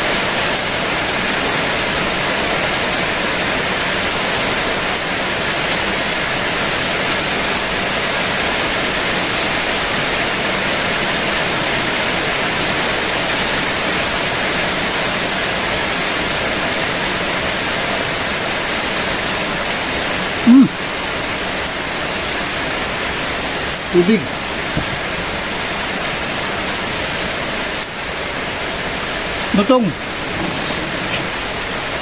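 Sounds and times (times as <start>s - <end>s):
heavy rain falling: 0.0s - 32.0s
brief loud voice: 20.5s - 20.8s.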